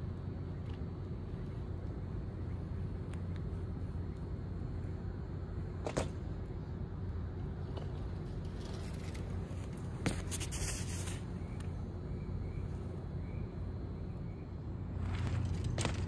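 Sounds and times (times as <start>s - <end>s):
steady low hum: 0.0s - 16.0s
bike riding on concrete: 5.6s - 11.7s, 14.9s - 16.0s
sharp knocks from bike: 5.8s - 6.2s.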